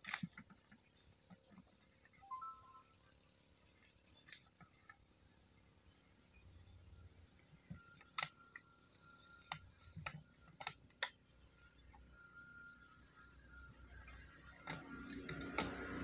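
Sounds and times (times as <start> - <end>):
faint steady high tone: 2.2 - 3.3.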